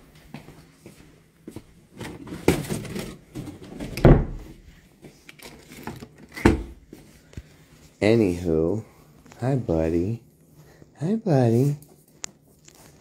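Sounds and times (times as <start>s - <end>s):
deep thump: 4.0s - 4.5s.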